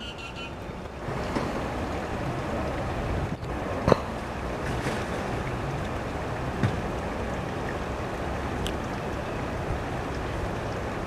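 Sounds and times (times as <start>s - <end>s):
wind buffeting microphone: 0.6s - 8.2s.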